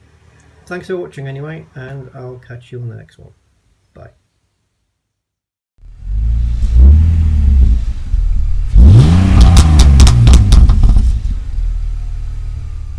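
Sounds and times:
car engine revving: 5.8s - 12.9s
exhaust pops: 6.2s - 12.6s.

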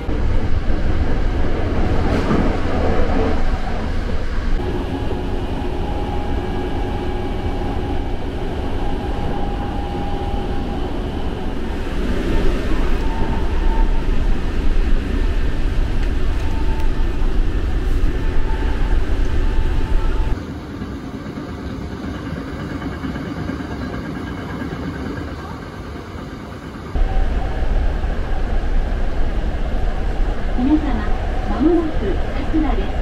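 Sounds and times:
train wheels rumbling on rails: 0.0s - 33.0s.

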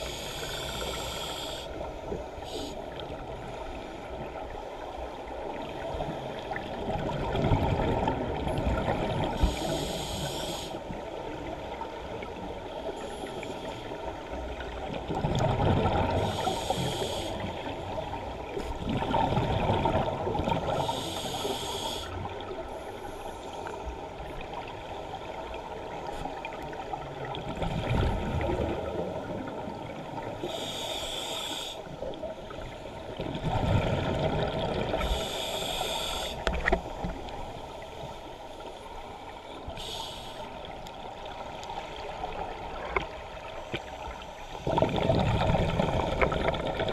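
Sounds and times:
muffled underwater water rush: 0.0s - 46.9s
high hiss: 9.4s - 10.8s, 20.8s - 22.2s, 35.0s - 36.4s, 39.8s - 40.5s.

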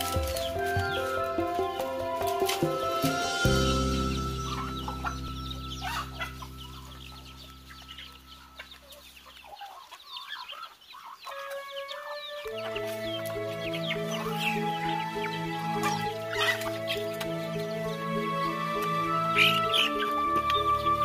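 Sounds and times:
background music: 0.0s - 9.4s, 11.2s - 21.0s
chickens clucking: 0.0s - 21.0s
short chirping calls: 3.0s - 11.8s.

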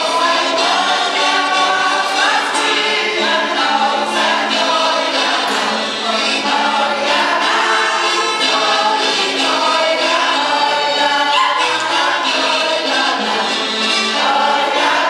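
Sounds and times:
group singing a folk song: 0.0s - 15.0s.

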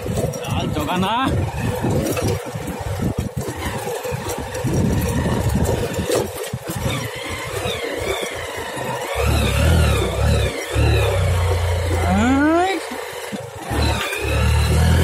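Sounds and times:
motorcycle engine rumbling: 0.0s - 15.0s.

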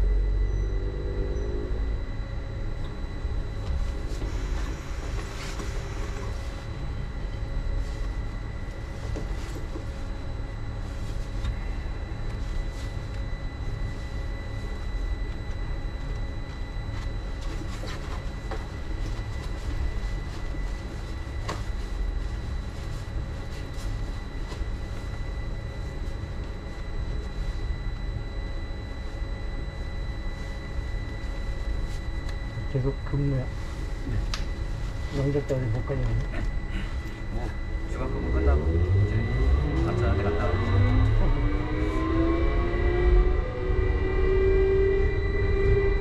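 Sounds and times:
high-pitched drive whine: 0.0s - 46.0s
train low rumble: 0.0s - 46.0s.

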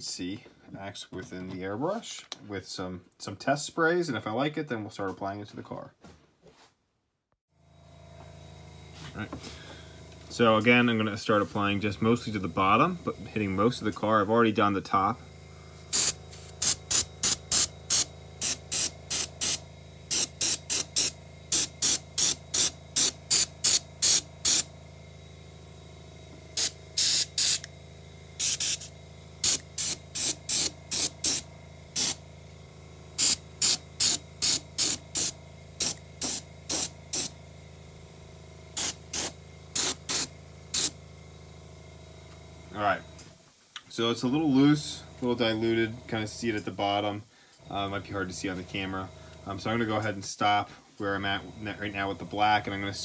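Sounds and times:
airbrush hissing bursts: 9.5s - 25.2s, 26.5s - 32.3s, 33.1s - 37.6s, 38.7s - 41.0s.

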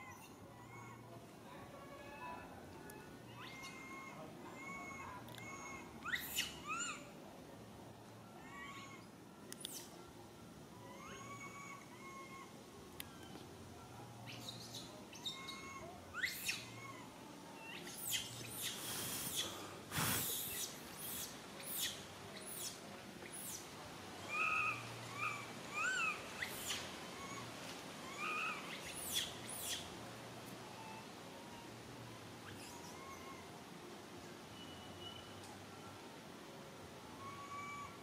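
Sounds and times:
monkey soft chirping calls: 0.0s - 1.1s, 2.9s - 7.2s, 8.4s - 10.0s, 10.8s - 13.4s, 14.2s - 30.0s, 30.6s - 33.7s, 37.1s - 38.0s
monkey shrill squeals: 3.3s - 7.0s, 8.4s - 9.0s, 10.8s - 12.5s, 14.4s - 23.6s, 24.2s - 29.8s, 30.7s - 31.7s, 32.4s - 33.5s, 37.2s - 38.0s.

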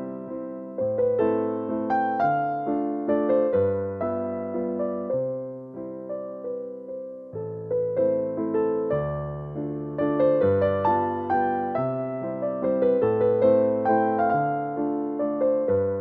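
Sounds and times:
solo piano music: 0.0s - 16.0s.

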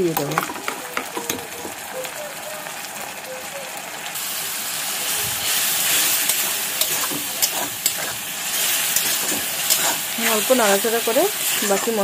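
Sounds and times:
paste sizzling in hot oil: 4.1s - 12.0s
spatula tapping and scraping pan: 6.2s - 8.2s, 8.9s - 10.5s.

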